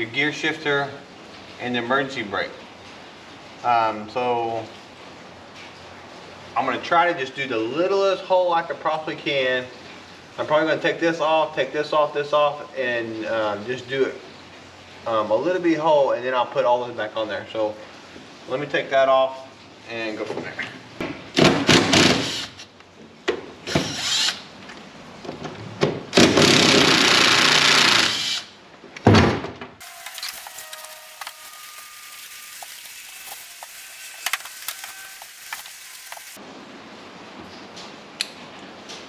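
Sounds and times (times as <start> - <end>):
cordless drill running: 23.7 - 24.4, 26.5 - 28.5, 29.8 - 36.4.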